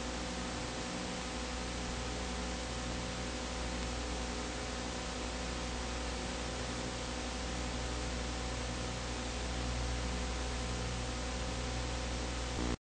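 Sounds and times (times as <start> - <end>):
film transfer hiss: 12.4 - 12.8
low hum: 12.6 - 12.8.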